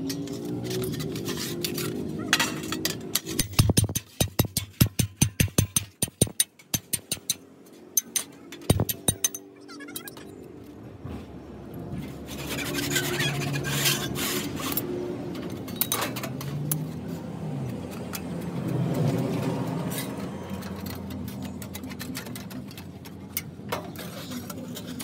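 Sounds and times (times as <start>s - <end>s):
hammer tapping sheet metal: 3.1s - 9.5s.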